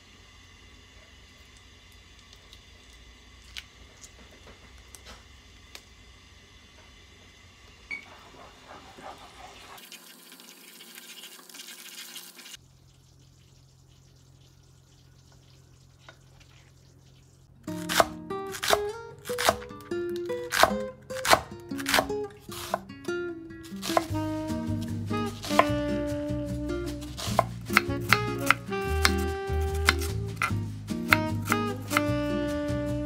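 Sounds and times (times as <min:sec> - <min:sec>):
knife chopping on wooden board: 0:20.5 - 0:22.8, 0:25.4 - 0:25.8, 0:27.2 - 0:32.1
background music: 0:23.7 - 0:33.0.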